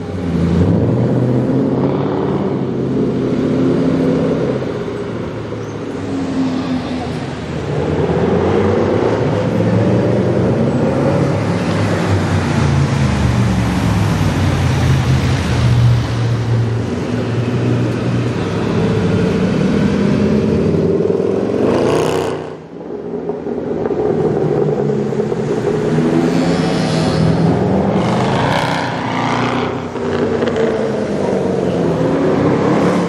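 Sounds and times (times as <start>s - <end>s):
car engine revving: 16.9s - 33.0s.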